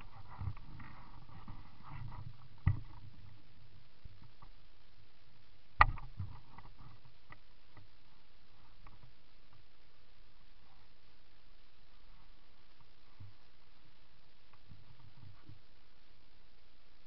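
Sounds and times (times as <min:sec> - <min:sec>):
bike rattles and knocks: 0:00.0 - 0:03.3.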